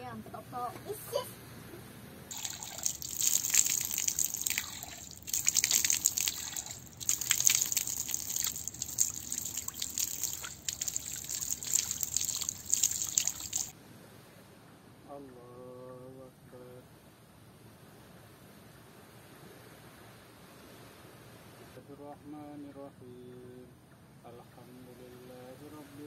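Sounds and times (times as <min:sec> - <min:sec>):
tap water splashing on hands: 0:02.3 - 0:13.7.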